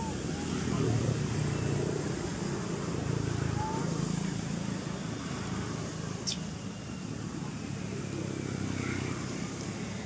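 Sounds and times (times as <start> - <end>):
low outdoor background rumble: 0.0 - 10.0.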